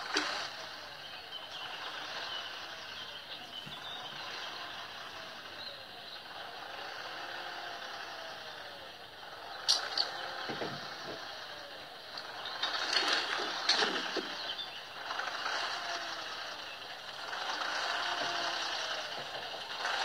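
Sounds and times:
rattle of hitch and load: 0.0 - 20.0
tractor engine running: 0.0 - 20.0
sharp metal clanks and creaks: 9.6 - 11.3, 12.2 - 14.5.

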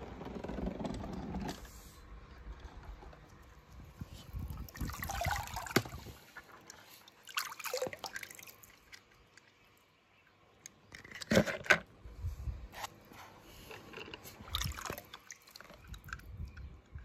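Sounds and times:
water splashing: 4.6 - 9.5, 14.4 - 16.2.

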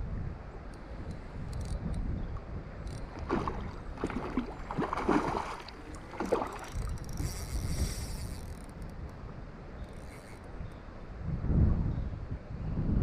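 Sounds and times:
wind buffeting microphone: 0.0 - 13.0
fish splashing in water: 3.2 - 7.2.

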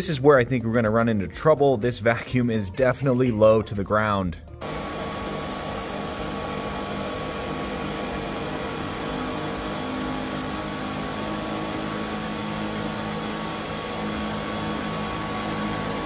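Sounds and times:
vacuum cleaner running on carpet: 4.6 - 16.0.

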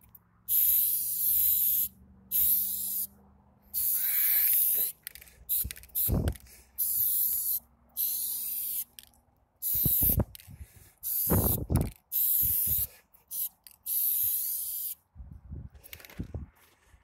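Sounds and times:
spray paint can hissing: 0.5 - 3.1, 3.7 - 10.4, 11.0 - 15.0.

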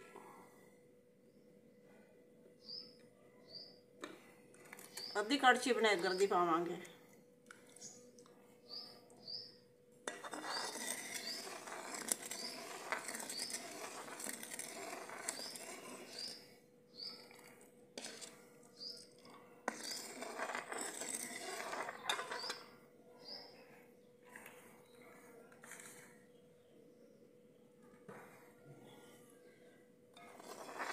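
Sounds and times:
small bird chirping: 2.6 - 3.8, 4.8 - 5.3, 7.6 - 9.6, 10.4 - 11.6, 13.2 - 13.7, 15.3 - 17.4, 18.7 - 19.2, 21.9 - 23.8
ladle stirring and scraping pan: 10.0 - 22.8, 23.7 - 26.2, 30.1 - 30.9.

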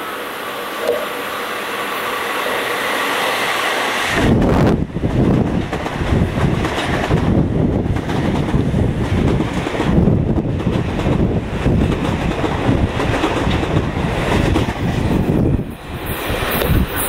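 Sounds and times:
high hiss of approaching train: 0.0 - 17.0
train passing with rumble: 0.0 - 17.0
wind buffeting microphone: 3.9 - 17.0.

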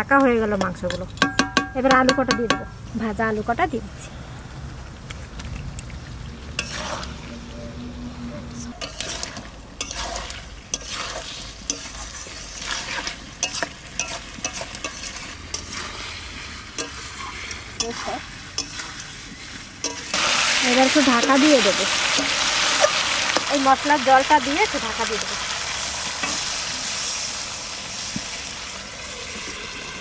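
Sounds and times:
metal spatula scraping a pan: 6.6 - 7.4, 8.7 - 23.7
meat sizzling in oil: 8.8 - 30.0.

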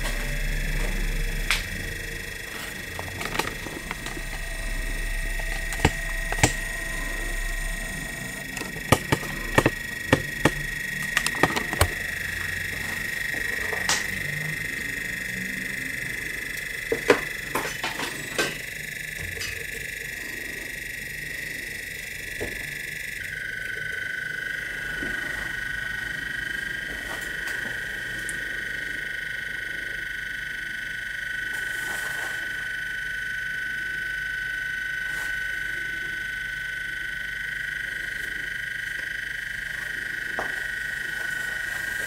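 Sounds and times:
high-pitched electrical whine: 0.0 - 42.0
test lead clips clicking: 0.1 - 14.4.

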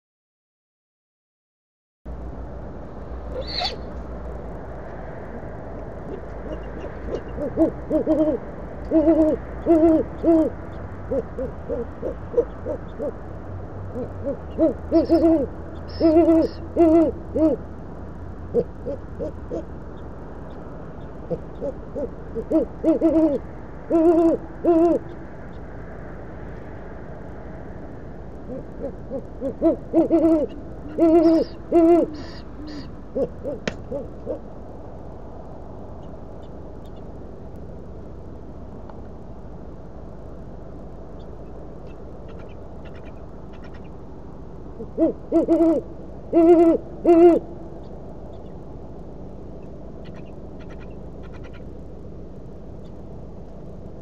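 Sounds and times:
low background hum: 2.1 - 54.0
owls hooting: 3.3 - 4.0, 5.3 - 13.2, 13.9 - 17.7, 18.5 - 20.1, 21.0 - 25.6, 28.4 - 34.5, 44.8 - 47.5, 49.6 - 51.7.

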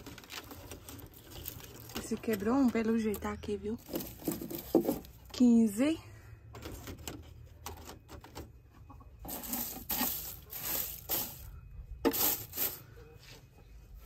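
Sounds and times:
hand rustling through straw: 9.3 - 11.5.

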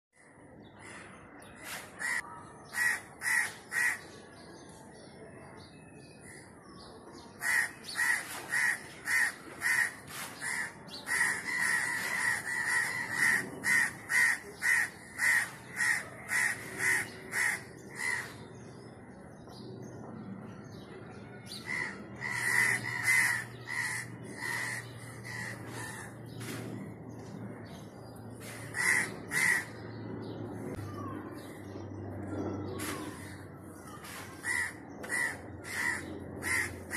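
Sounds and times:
crows cawing: 2.0 - 4.0, 7.4 - 18.4, 21.6 - 26.2, 28.4 - 29.8, 34.0 - 36.9.

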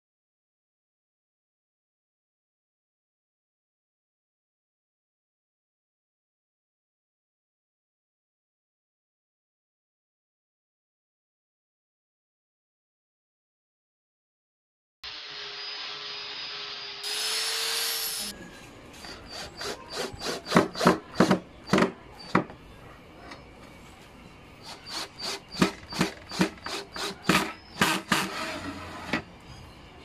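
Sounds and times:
angle grinder running: 15.0 - 18.3
cordless drill driving screws: 15.1 - 18.3, 24.6 - 29.2.

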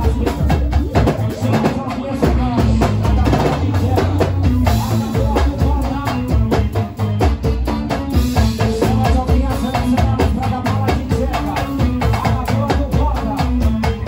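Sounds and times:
heavy bass line: 0.0 - 14.0
live band playing dance beat: 0.0 - 14.0
loud drums and percussion: 0.0 - 14.0.

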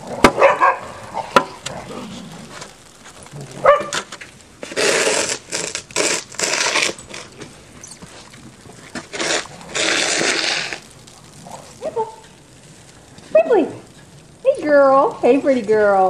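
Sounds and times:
crunching snow: 0.0 - 16.0
dog barking: 0.3 - 1.0, 3.6 - 4.0, 11.5 - 12.2.

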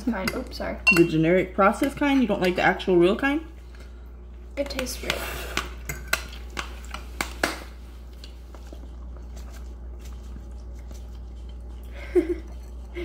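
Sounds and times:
soft patter of grated cheese: 7.8 - 13.0.

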